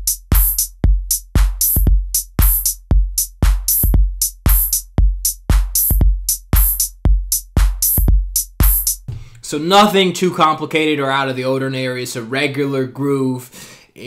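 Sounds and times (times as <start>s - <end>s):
deep kick drum: 0.0s - 9.4s
crisp off-beat hits: 0.0s - 9.5s.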